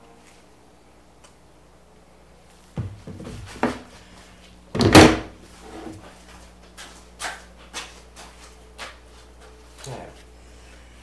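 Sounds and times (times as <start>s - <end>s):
wood knocking on workbench: 4.8s - 5.3s.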